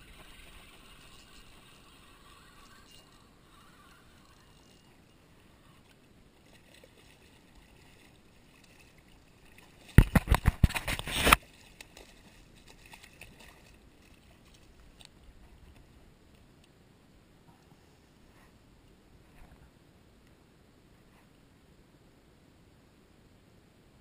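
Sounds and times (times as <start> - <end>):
fish thrashing and splashing: 6.4 - 14.5.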